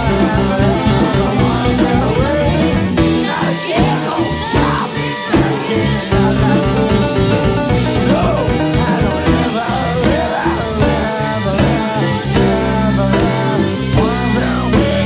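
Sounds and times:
rock band playing live: 0.0s - 15.0s.

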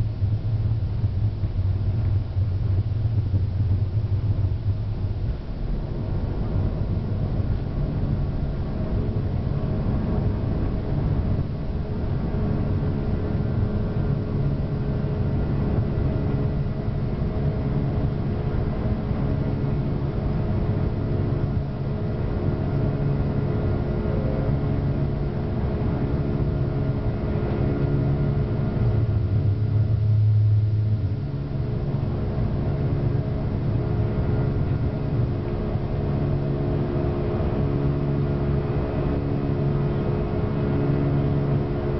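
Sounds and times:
jet engines rumbling in cabin: 0.0s - 41.9s.

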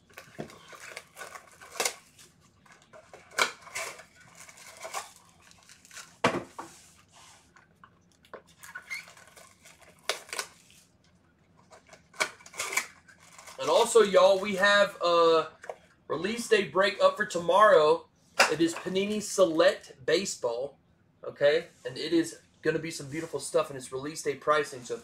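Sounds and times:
wrappers and cardboard tearing: 0.0s - 7.0s, 8.5s - 10.9s, 11.6s - 14.6s.

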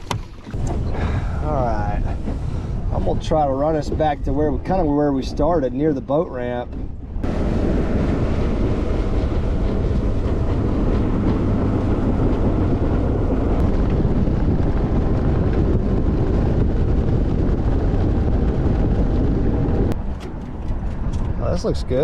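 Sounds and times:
rush of water: 0.0s - 4.6s
outboard motor drone: 0.0s - 22.0s
wind on microphone: 0.0s - 22.0s.

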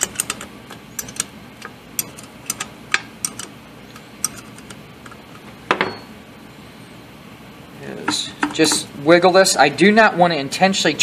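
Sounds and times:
ratchet wrench clicking: 0.0s - 3.5s.

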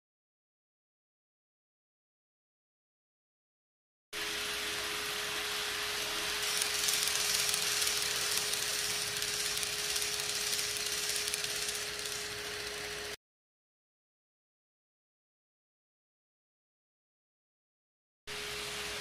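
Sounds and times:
model train wheel and rail noise: 4.2s - 13.2s, 18.3s - 19.0s
small electric motor hum: 4.2s - 13.2s.

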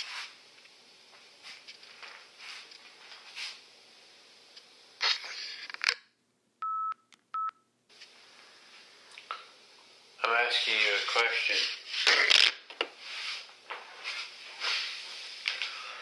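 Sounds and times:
tape hiss: 0.0s - 16.0s.

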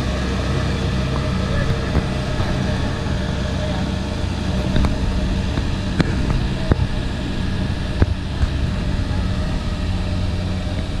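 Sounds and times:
diesel engine running: 0.0s - 11.0s.

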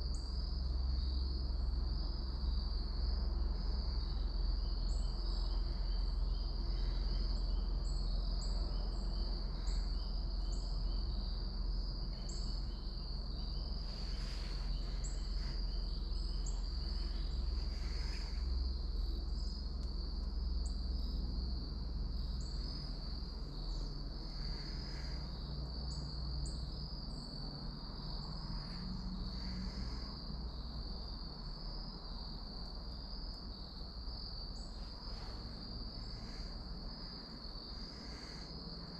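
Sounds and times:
insects trilling: 0.0s - 38.9s
low steady rumble: 0.0s - 38.9s.

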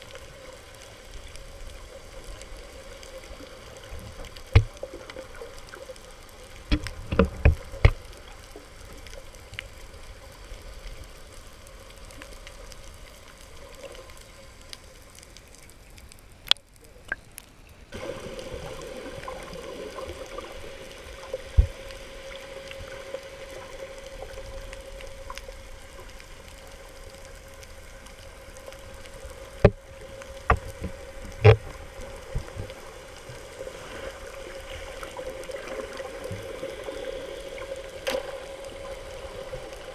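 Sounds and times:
muffled underwater water wash: 0.0s - 39.9s
steady hum: 17.9s - 39.9s.

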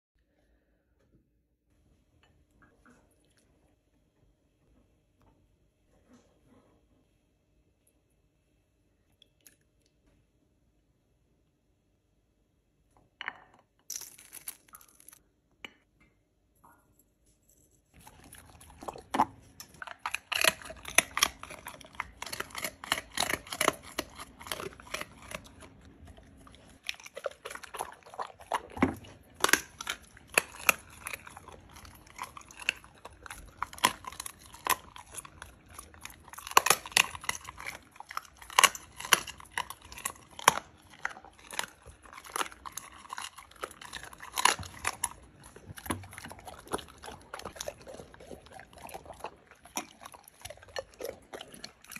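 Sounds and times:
dog chewing and crunching food: 17.9s - 51.9s.

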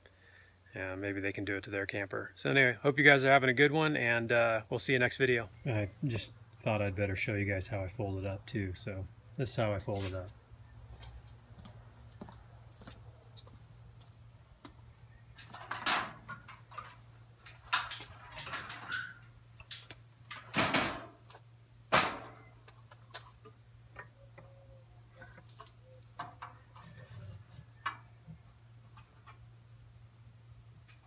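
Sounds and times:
metal ramp panels clanking: 15.4s - 21.2s, 21.9s - 22.5s.

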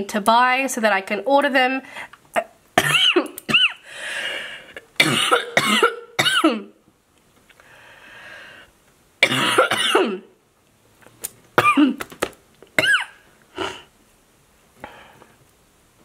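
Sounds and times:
woman coughing: 2.8s - 3.8s, 5.0s - 6.8s, 9.2s - 10.3s, 11.6s - 12.0s, 12.8s - 13.2s
woman breathing in: 3.8s - 4.8s, 7.6s - 8.8s, 14.8s - 15.4s.

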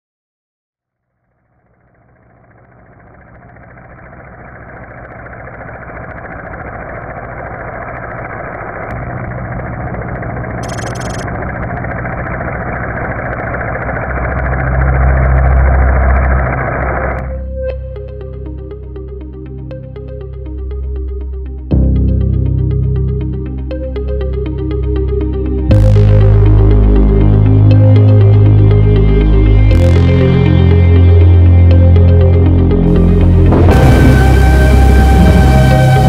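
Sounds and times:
rumbling sound-design drone: 0.9s - 36.0s
music: 17.2s - 36.0s.

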